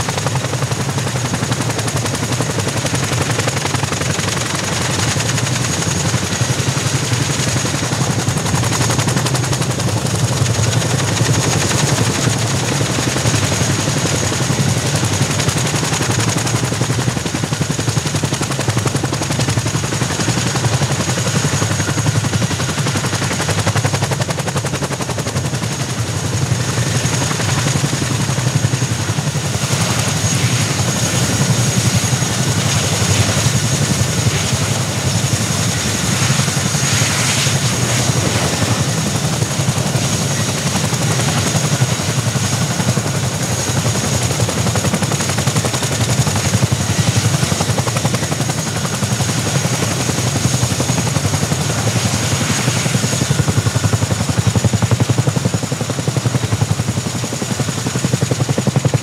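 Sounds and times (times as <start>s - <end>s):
helicopter rotor blade slap: 26.2s - 55.9s.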